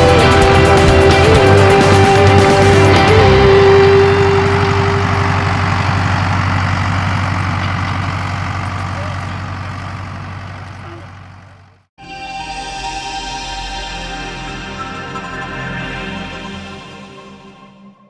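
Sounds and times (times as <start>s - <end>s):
electronic music: 0.0s - 5.6s, 12.0s - 18.0s
tractor diesel engine running: 0.0s - 11.9s.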